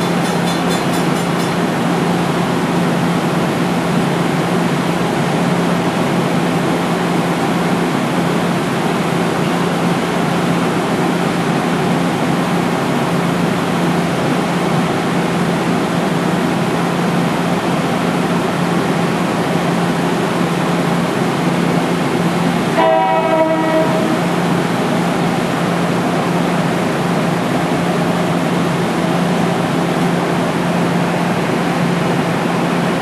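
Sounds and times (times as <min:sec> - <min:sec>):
train horn blast: 0:22.7 - 0:24.3.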